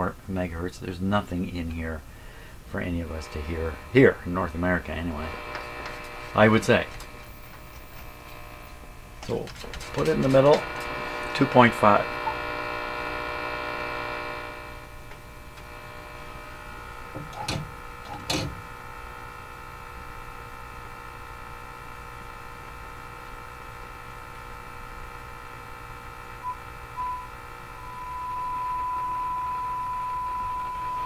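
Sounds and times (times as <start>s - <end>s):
radio speaker hum and hiss: 0.0s - 31.0s
steady test tone: 2.7s - 7.1s, 9.8s - 18.6s, 26.4s - 31.0s.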